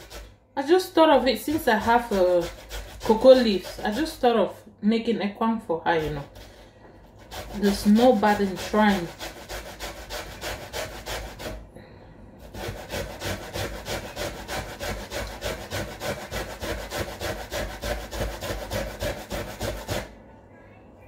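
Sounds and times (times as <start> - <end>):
grating on metal box grater: 0.0 - 4.3, 6.0 - 11.6, 12.4 - 20.1.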